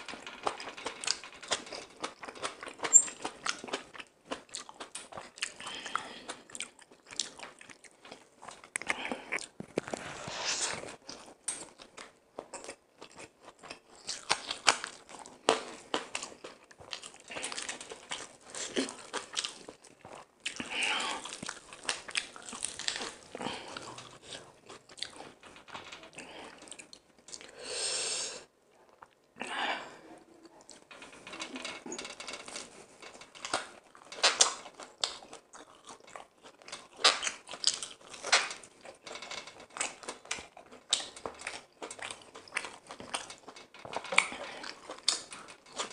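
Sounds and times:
crunchy chewing: 11.0s - 25.4s, 32.6s - 45.9s.

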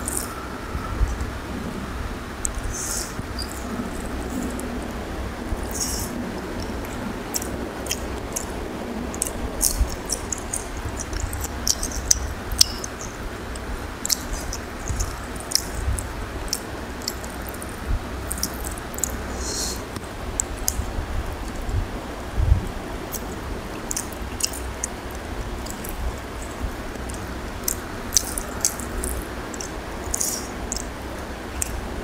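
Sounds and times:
chewing: 0.0s - 0.4s, 2.4s - 21.8s, 23.1s - 31.9s
fingers squishing rice and curry: 5.6s - 21.6s, 23.1s - 31.9s.

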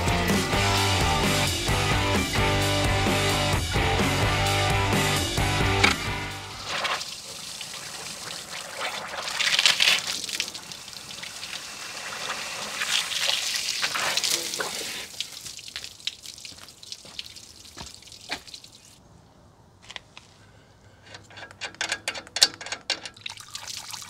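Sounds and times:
hose water running into radiator: 5.6s - 19.0s, 22.5s - 24.0s.

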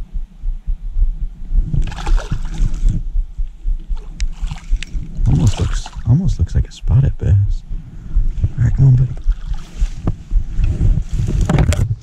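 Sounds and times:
wind rumble on microphone: 0.0s - 12.0s
fish splashing in water: 1.8s - 2.8s, 4.0s - 6.1s.

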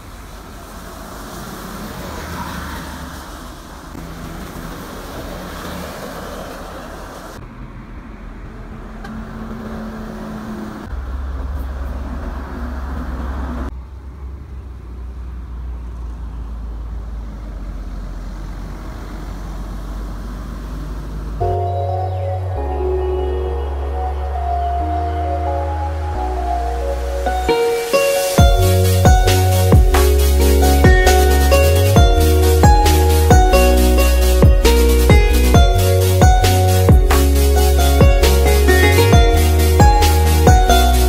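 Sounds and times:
tyres hissing on wet road: 0.0s - 7.4s, 22.8s - 41.0s
bus engine rumble: 0.0s - 41.0s.

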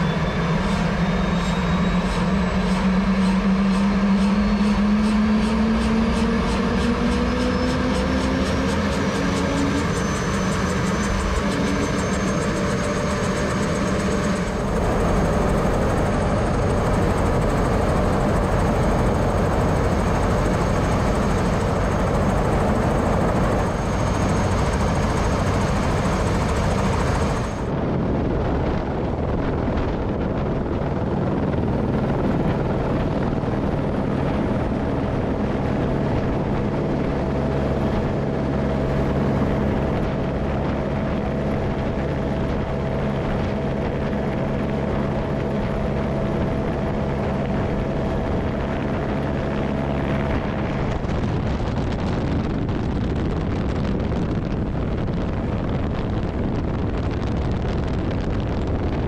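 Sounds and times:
helicopter engine and rotor: 0.0s - 59.0s.

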